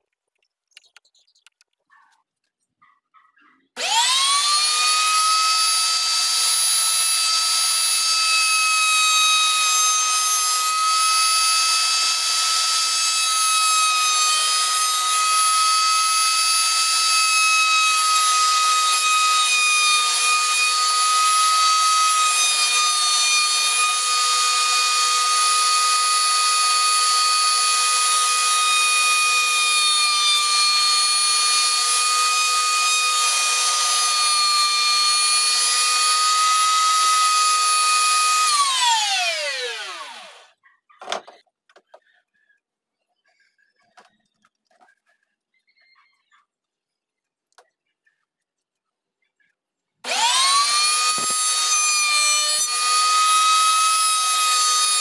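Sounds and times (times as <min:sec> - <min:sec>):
router high-pitched whine: 0:03.8 - 0:40.5, 0:50.0 - 0:55.0.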